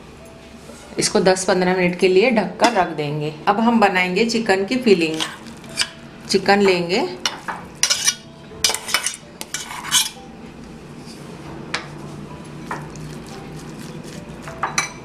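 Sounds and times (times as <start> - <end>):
metal spoon scraping glass bowl: 7.8 - 10.2.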